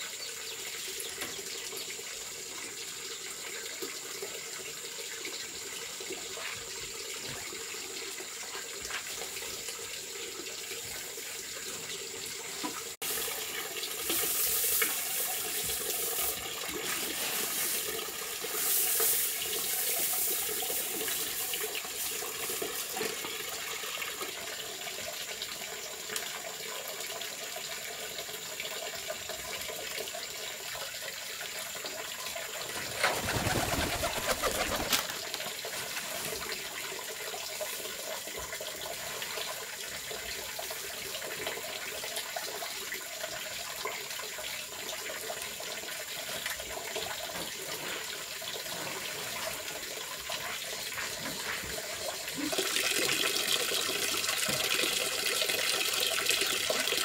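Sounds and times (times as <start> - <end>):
rice grains rustling in basket: 14.1 - 21.4.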